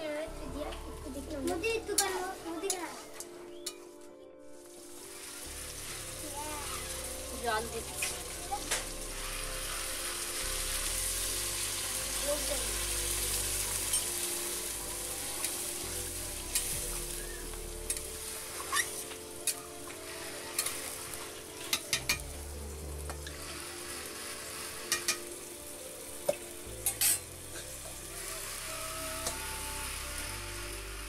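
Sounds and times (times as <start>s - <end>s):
curry sizzling in a metal pan: 0.0s - 3.8s, 4.5s - 31.0s
metal spoon clinking against a pan: 26.8s - 27.2s.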